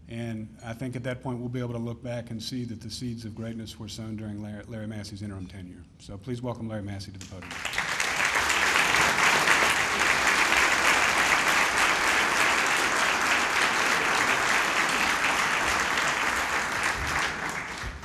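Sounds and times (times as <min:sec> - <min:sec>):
audience applauding: 0:07.4 - 0:18.0.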